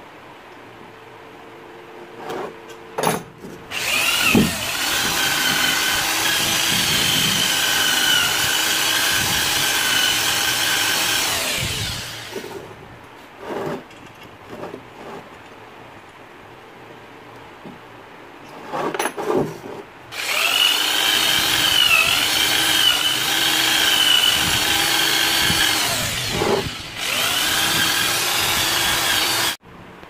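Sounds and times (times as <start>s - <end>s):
drill wire wheel scouring metal: 3.7s - 12.6s, 20.1s - 29.6s.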